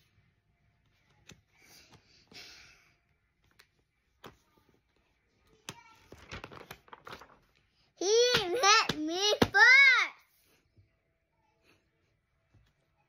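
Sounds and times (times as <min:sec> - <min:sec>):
paper pages rustling and tapping: 0:03.4 - 0:07.6.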